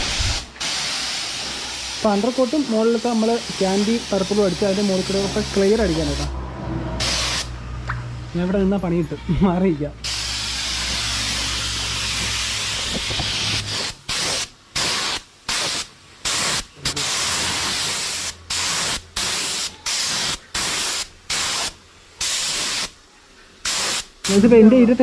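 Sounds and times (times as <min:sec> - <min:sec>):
paint spray gun hissing: 0:00.0 - 0:06.3, 0:07.0 - 0:07.5, 0:10.0 - 0:23.0, 0:23.6 - 0:24.6.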